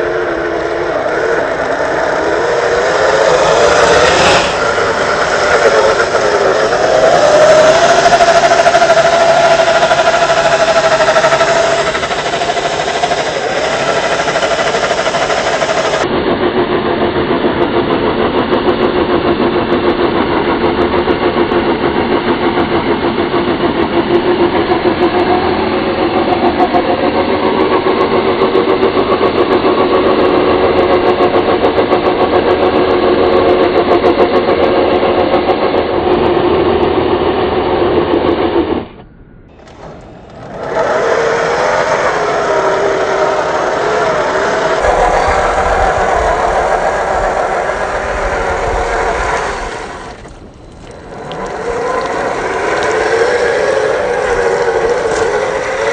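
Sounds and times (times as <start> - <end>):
electric motor and gears whining: 0.0 - 16.1, 38.7 - 55.9.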